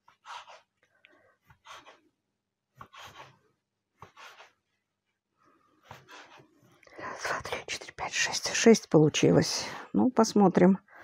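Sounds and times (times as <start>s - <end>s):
knife cutting dough on wooden board: 0.0s - 0.8s, 1.4s - 2.0s, 2.7s - 3.4s, 4.0s - 4.6s, 5.8s - 6.7s.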